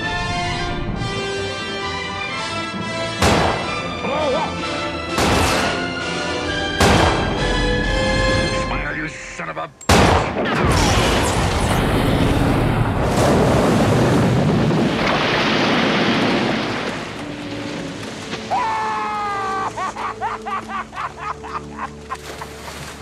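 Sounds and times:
explosion with water spray: 0:10.0 - 0:18.5
debris splashing onto sea: 0:11.0 - 0:21.0
gulls calling: 0:18.4 - 0:22.5.

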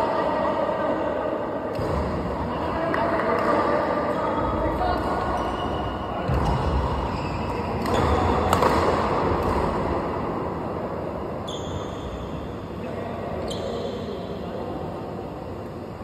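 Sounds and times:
steady background hiss: 0:00.0 - 0:16.0
rackets hitting shuttlecock: 0:06.2 - 0:10.0.

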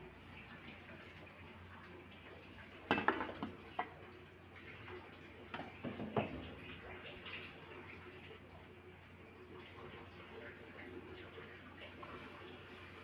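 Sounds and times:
kitchenware clicking and knocking: 0:02.9 - 0:03.9, 0:05.8 - 0:06.4.

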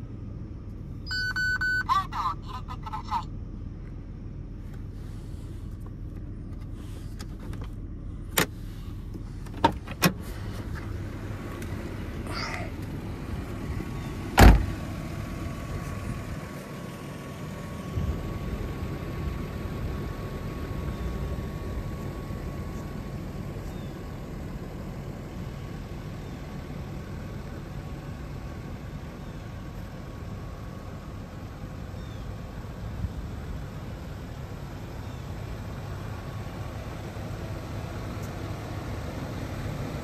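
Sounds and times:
low rumble: 0:03.2 - 0:39.3
car door slamming: 0:14.3 - 0:14.8.

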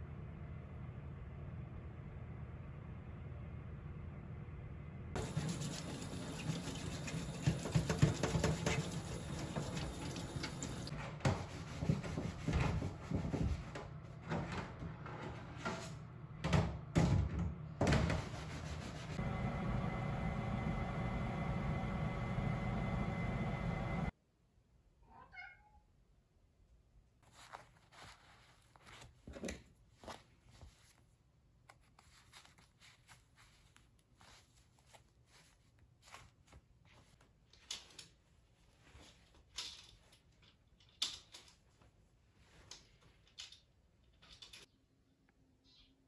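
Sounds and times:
cat meowing: 0:25.0 - 0:25.9
curtain hooks clicking and rustling: 0:37.4 - 0:38.2, 0:39.2 - 0:41.8, 0:42.6 - 0:44.7.

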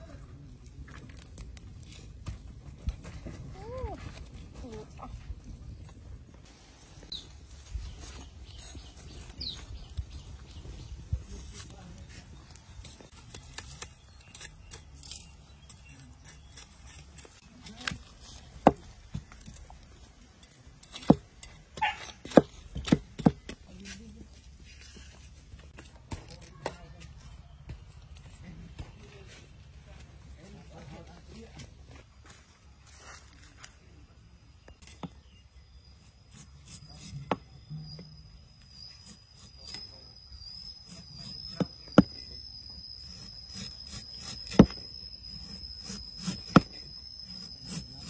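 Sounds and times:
cleaver scraping bamboo: 0:07.0 - 0:10.3, 0:11.3 - 0:24.0, 0:34.8 - 0:48.0
cleaver chopping: 0:12.9 - 0:19.8, 0:20.4 - 0:23.7, 0:40.5 - 0:48.0
cleaver chopping on wood: 0:18.6 - 0:19.6, 0:20.8 - 0:23.6, 0:43.1 - 0:47.9.

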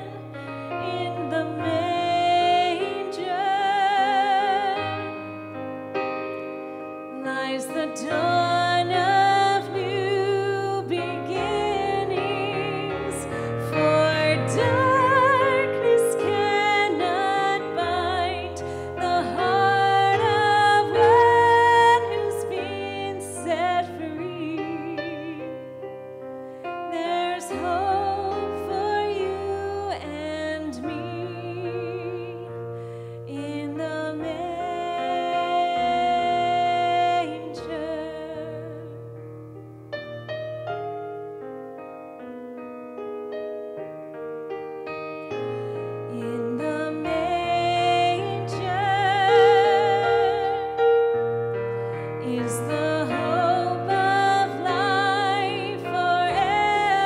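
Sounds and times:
woman singing into microphone: 0:00.0 - 0:05.2, 0:07.1 - 0:25.6, 0:26.9 - 0:32.6, 0:33.2 - 0:39.0, 0:45.8 - 0:50.9, 0:52.0 - 0:57.0
instrumental backing: 0:00.0 - 0:57.0.

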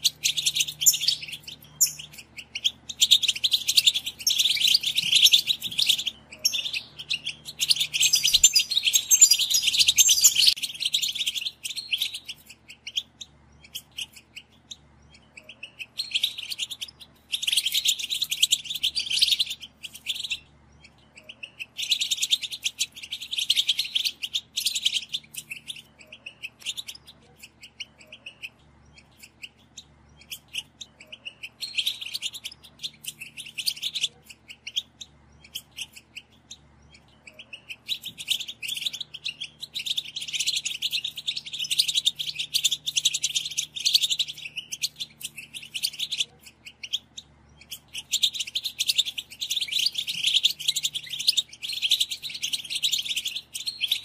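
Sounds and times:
bird chirps: 0:00.0 - 0:54.0
goldfinch twittering: 0:00.0 - 0:54.0.

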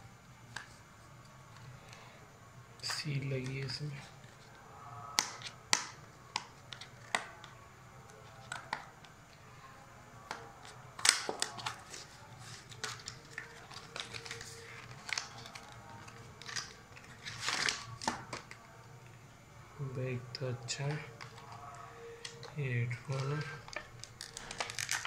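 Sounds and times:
packaging being opened by hand: 0:10.3 - 0:18.7, 0:21.2 - 0:25.0.

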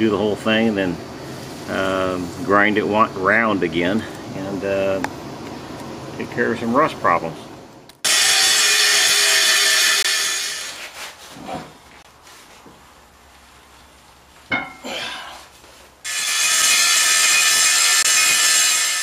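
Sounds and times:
angle grinder grinding metal: 0:08.0 - 0:11.0, 0:16.1 - 0:19.0.

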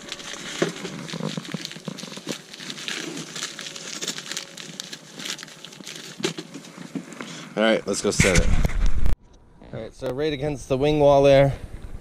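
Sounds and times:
hands rummaging through tools: 0:00.0 - 0:07.3
paper packet crinkling: 0:00.0 - 0:07.3.

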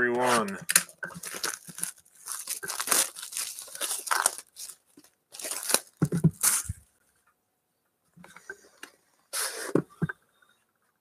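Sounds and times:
plastic wrapping crinkling: 0:00.2 - 0:06.9.

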